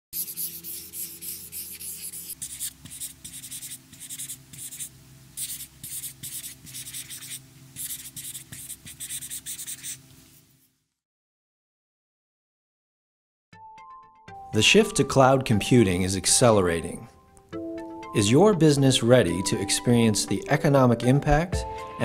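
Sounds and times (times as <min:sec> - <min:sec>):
marker scratching on paper: 0:00.2 - 0:10.0.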